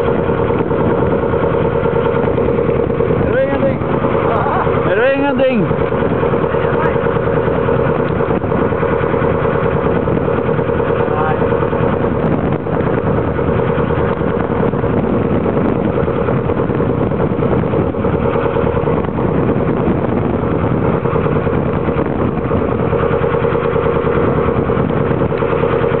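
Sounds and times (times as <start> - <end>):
boat engine droning: 0.0 - 26.0
water rushing: 0.0 - 26.0
wind rushing: 7.3 - 25.9.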